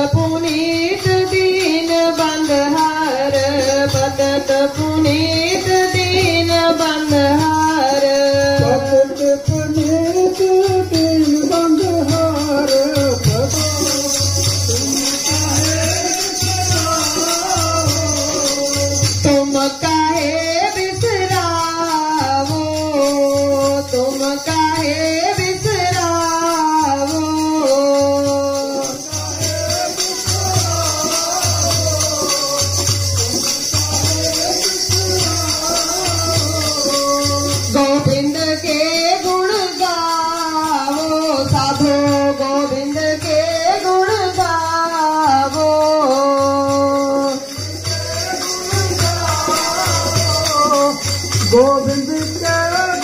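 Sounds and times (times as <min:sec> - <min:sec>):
high jingling percussion: 0:00.0 - 0:53.0
person singing: 0:00.0 - 0:53.0.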